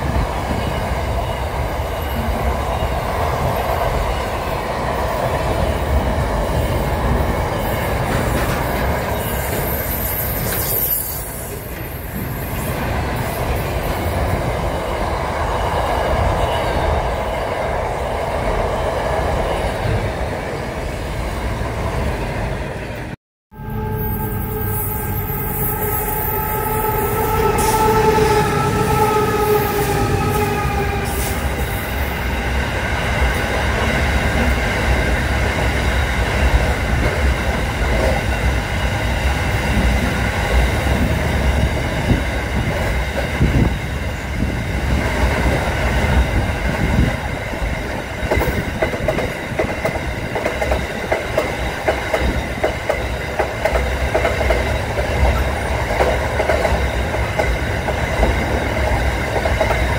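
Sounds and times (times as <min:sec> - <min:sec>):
train wheels clattering on rails: 0:00.0 - 0:17.4, 0:29.8 - 0:59.9
locomotive horn: 0:23.5 - 0:31.6.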